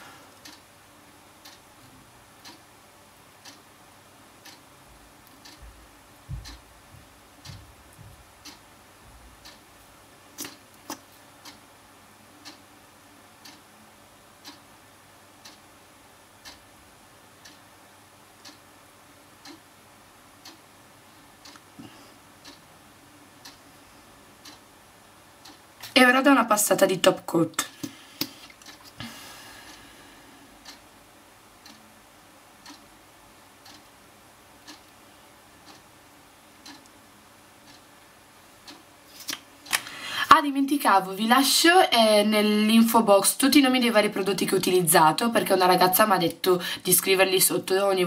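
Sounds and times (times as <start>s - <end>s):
clock ticking: 0.3s - 11.7s, 12.4s - 12.7s, 13.4s - 13.7s, 14.4s - 14.7s, 15.4s - 15.7s, 16.4s - 16.8s, 17.4s - 17.8s, 18.4s - 18.7s, 19.3s - 19.7s, 20.4s - 22.8s, 23.4s - 23.7s, 24.4s - 28.9s, 30.6s - 31.0s, 31.6s - 34.0s, 34.6s - 37.0s, 37.6s - 38.9s, 41.8s - 48.0s.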